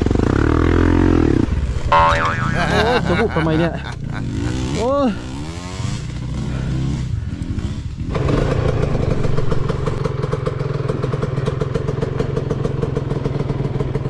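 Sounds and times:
dirt bike idling: 0:06.0 - 0:14.0.

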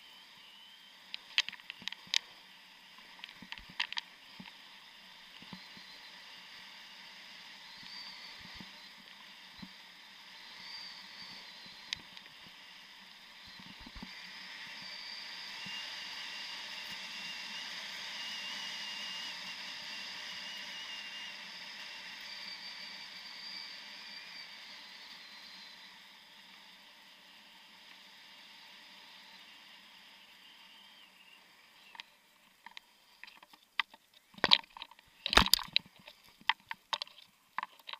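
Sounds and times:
sharp clicks: 0:03.2 - 0:04.6, 0:31.9 - 0:37.9.

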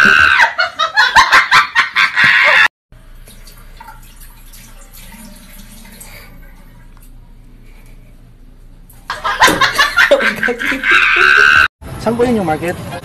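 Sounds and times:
loud laughter: 0:00.0 - 0:02.7, 0:09.1 - 0:11.7.

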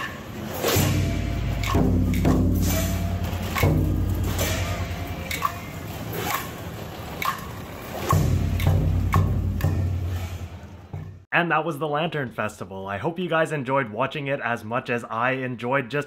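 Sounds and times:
music with percussion and deep bass: 0:00.5 - 0:11.3.

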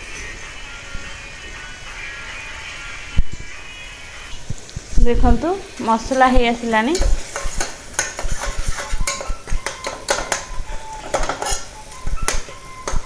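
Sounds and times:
metal spatula scraping pot: 0:05.9 - 0:13.0.

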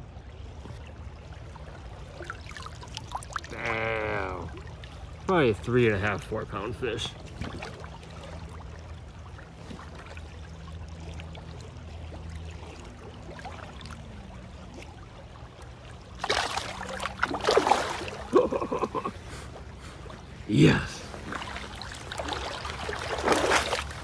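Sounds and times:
river water running: 0:00.0 - 0:24.0
fish splashing in water: 0:07.2 - 0:18.8, 0:21.1 - 0:24.0.

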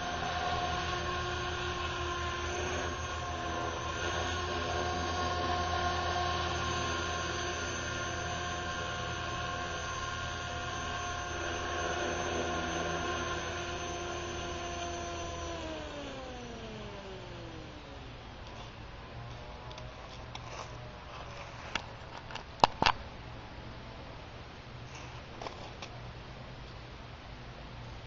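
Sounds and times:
rc helicopter motor whining: 0:00.0 - 0:18.2.

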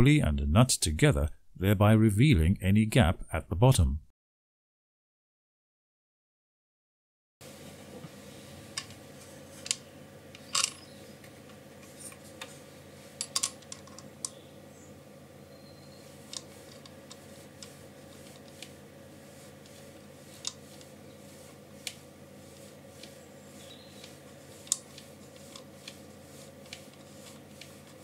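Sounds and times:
small clicks and taps: 0:24.0 - 0:26.0.

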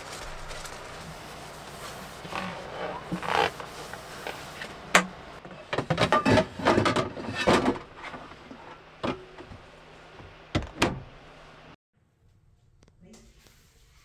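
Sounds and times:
plates and cabinet clattering: 0:05.0 - 0:08.4.

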